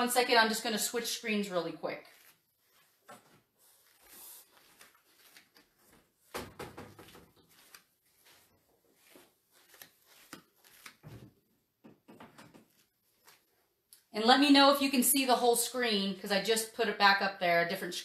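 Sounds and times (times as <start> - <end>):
whiteboards knocking and scraping: 6.3 - 7.4.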